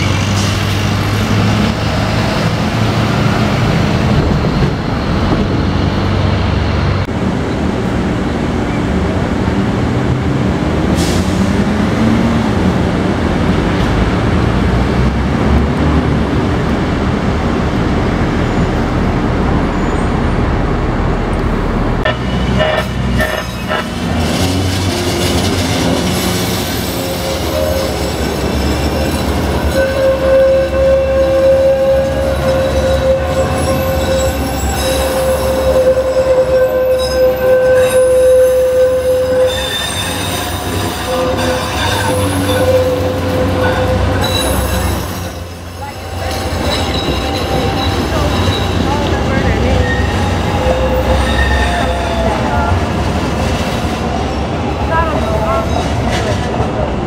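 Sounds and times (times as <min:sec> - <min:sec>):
light-rail train rumbling: 0:00.0 - 0:57.0
high-pitched metal squeal: 0:22.2 - 0:52.4.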